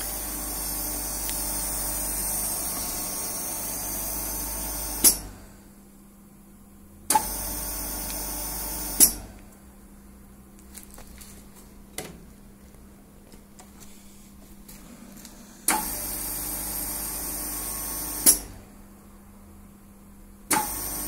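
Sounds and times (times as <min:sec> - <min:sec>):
milling machine cutter motor: 0:00.0 - 0:05.3.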